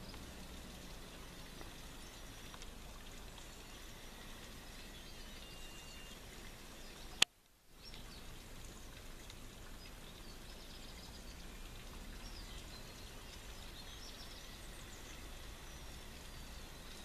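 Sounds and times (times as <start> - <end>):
outdoor background noise: 0.0 - 17.0
faint bird chirps: 3.4 - 7.2.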